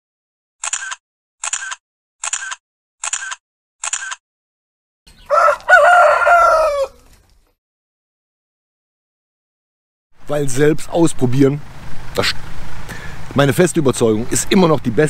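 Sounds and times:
camera shutter clicks: 0:00.6 - 0:04.2
rooster crowing: 0:05.2 - 0:07.2.

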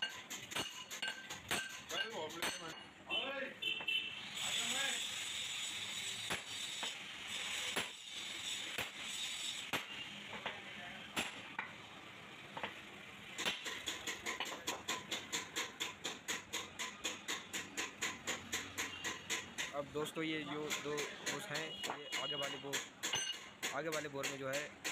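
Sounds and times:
hammer knocking on steel: 0:20.6 - 0:24.9.

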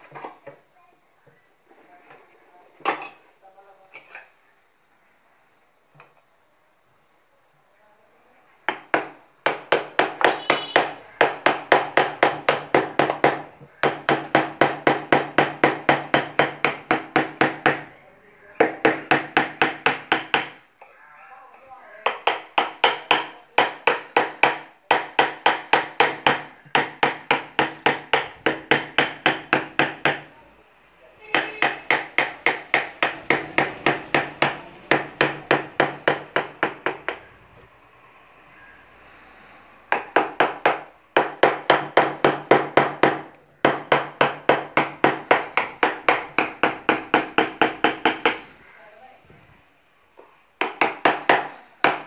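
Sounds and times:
hammer striking chisel into wood: 0:08.7 - 0:17.9, 0:18.6 - 0:20.6, 0:22.0 - 0:30.3, 0:31.2 - 0:37.2, 0:39.9 - 0:48.5, 0:50.6 - 0:52.0.

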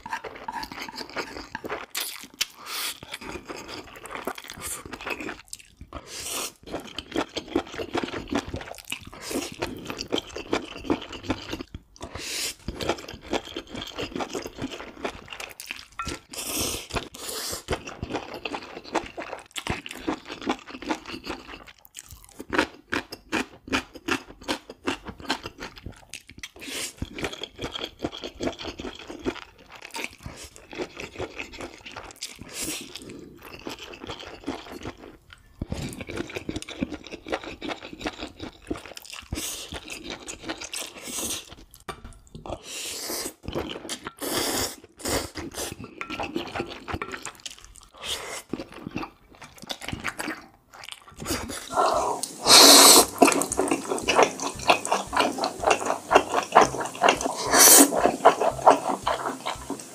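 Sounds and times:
wet chewing: 0:45.4 - 0:59.9
noodle slurping: 0:51.1 - 0:59.9.

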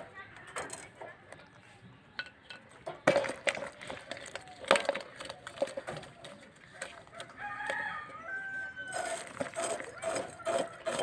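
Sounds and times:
fish handled in steel bowl: 0:00.0 - 0:11.0
rooster crowing: 0:07.1 - 0:09.3.

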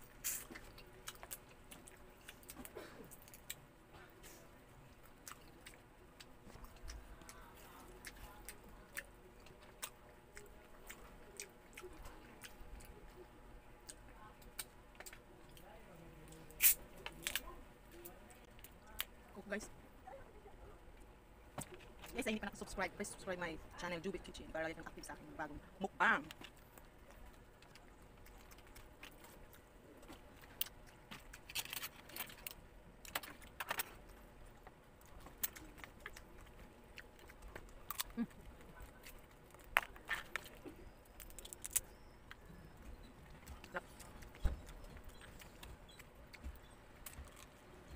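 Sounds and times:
mouth sucking and chewing: 0:00.0 - 0:02.6
crab shell cracking by hand: 0:38.8 - 0:41.9.

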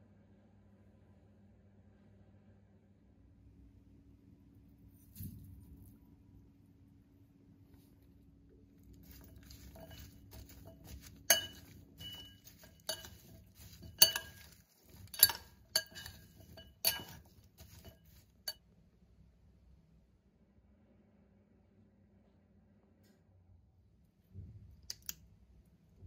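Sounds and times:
vegetables rustling: 0:08.8 - 0:18.6
spoon clinking on glass bowl: 0:09.0 - 0:18.6.

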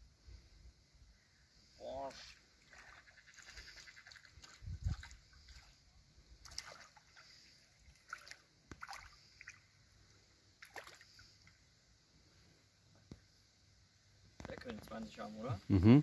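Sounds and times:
water lapping at dock: 0:02.2 - 0:09.7, 0:10.6 - 0:11.6.

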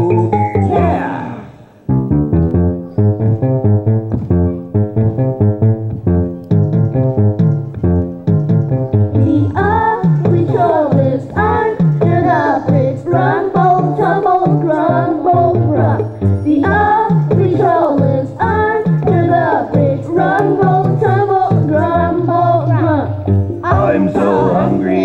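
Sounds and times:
backing music: 0:00.0 - 0:01.2, 0:01.8 - 0:25.0
voices singing: 0:00.0 - 0:01.7, 0:09.2 - 0:25.0
bass line: 0:01.9 - 0:25.0.

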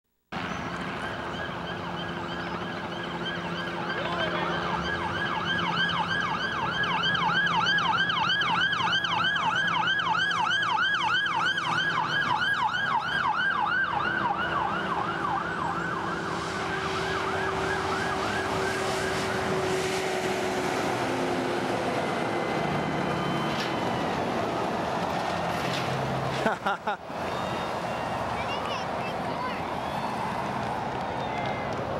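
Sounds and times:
highway traffic and passing trucks: 0:00.3 - 0:31.9
siren yelping: 0:00.4 - 0:19.6, 0:21.6 - 0:25.0.

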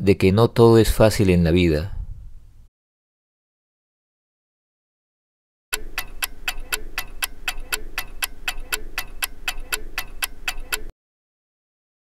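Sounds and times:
clock ticking: 0:05.7 - 0:10.9.

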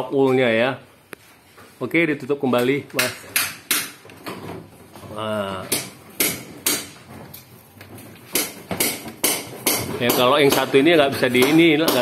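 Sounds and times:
sharp knocks on ceiling panel: 0:08.3 - 0:10.7.

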